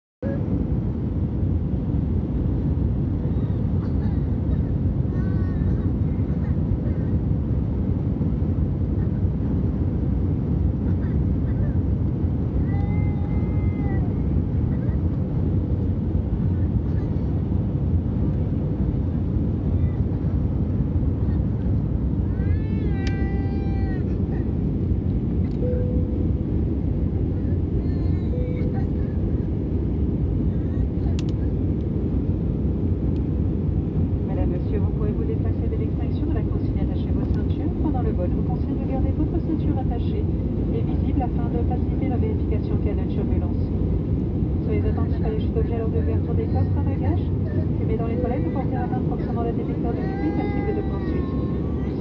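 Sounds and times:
jet airliner cabin rumble: 0.2s - 52.0s
high-pitched whining cry: 49.9s - 52.0s.

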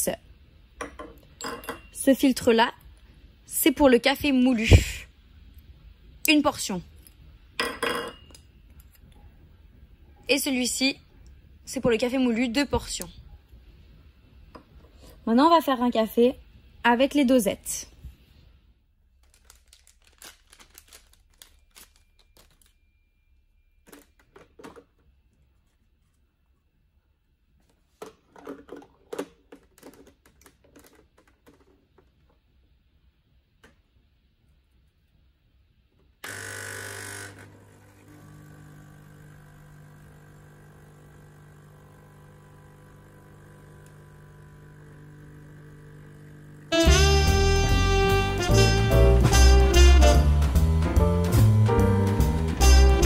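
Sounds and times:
paper crinkling and rustling: 19.2s - 22.8s
espresso machine pump buzzing: 36.2s - 47.9s
music: 46.7s - 53.0s.

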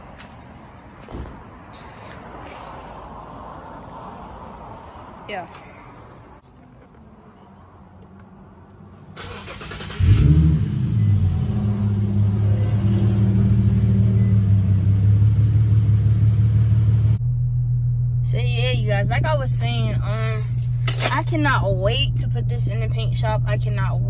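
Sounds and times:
car engine starting and idling: 7.3s - 24.0s.

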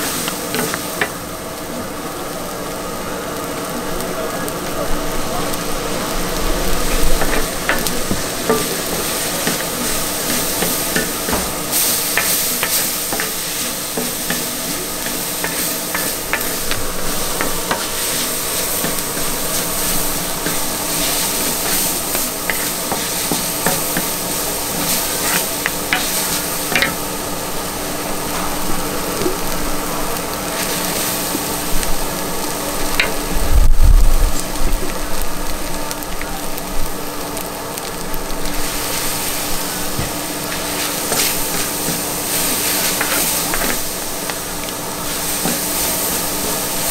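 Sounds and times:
food sizzling on a griddle: 0.0s - 46.9s
metal spatulas scraping: 7.2s - 27.0s.

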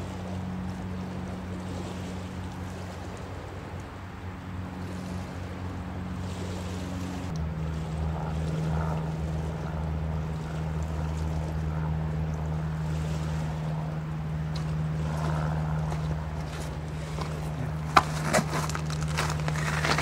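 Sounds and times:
low engine drone: 0.0s - 20.0s
footsteps on pebbles: 15.2s - 20.0s.

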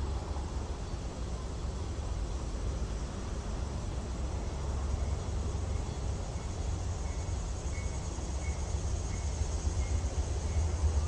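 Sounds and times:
freight train rumbling: 0.0s - 11.0s
insects trilling: 4.9s - 11.0s.

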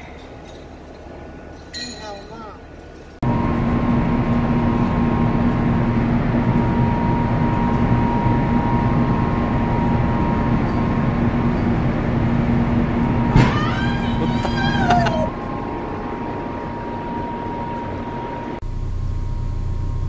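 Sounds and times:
low machinery hum: 0.0s - 20.0s.

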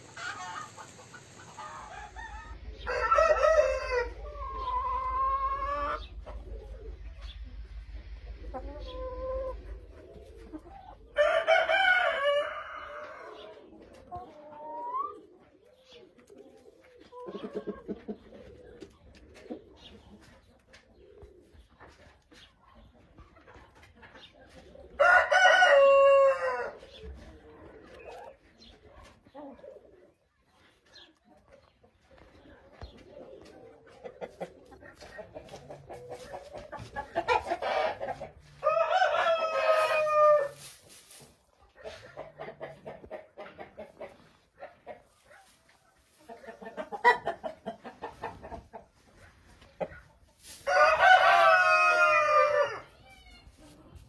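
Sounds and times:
chickens clucking: 0.0s - 54.0s
rooster crowing: 1.7s - 4.3s, 11.2s - 13.3s, 25.0s - 26.7s, 38.6s - 40.6s, 50.7s - 52.8s.

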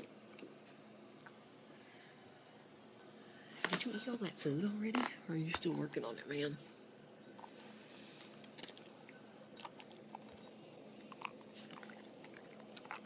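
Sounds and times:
dog crunching food: 8.4s - 13.0s.

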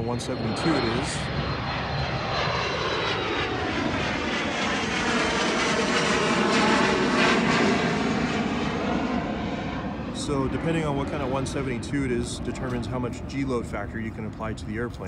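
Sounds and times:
jet engines whining: 0.0s - 15.0s.

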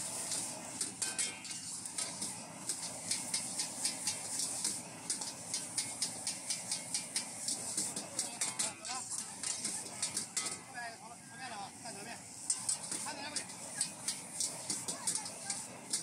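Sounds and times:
frying hiss: 0.0s - 16.0s
metal spatula clanking on wok: 0.3s - 2.1s, 5.2s - 10.7s.

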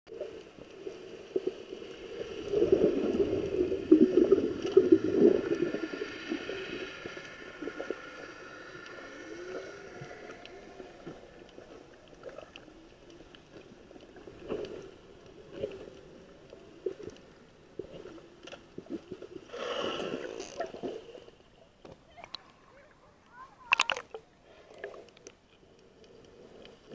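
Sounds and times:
faint steady hum: 0.1s - 26.9s
water gurgling and bubbling: 0.2s - 13.0s.

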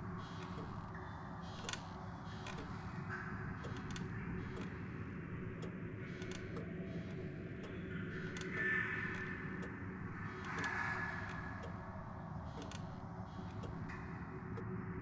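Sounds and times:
low background hum: 0.0s - 15.0s
clock ticking: 0.3s - 0.8s, 1.6s - 1.8s, 2.4s - 2.8s, 3.5s - 4.8s, 5.4s - 13.9s.

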